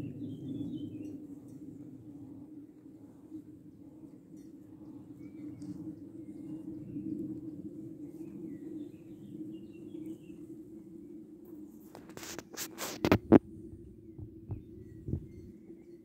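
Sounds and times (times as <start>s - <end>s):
low hum: 0.0s - 15.9s
rustles and knocks: 11.9s - 13.5s.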